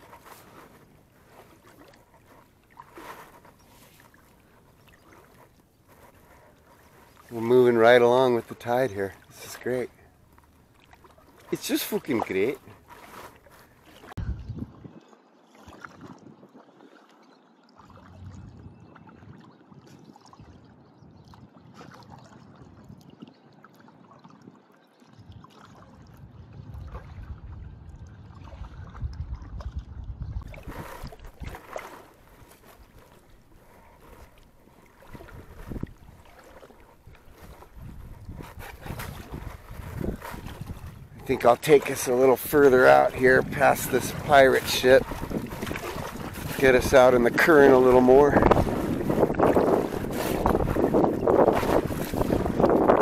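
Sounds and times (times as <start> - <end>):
small splashes: 0.0 - 14.2, 15.0 - 18.3, 28.3 - 53.0
water swishing around kayak: 0.0 - 53.0
wind rumble on microphone: 14.1 - 16.6, 17.9 - 23.4, 24.0 - 33.1, 34.8 - 53.0.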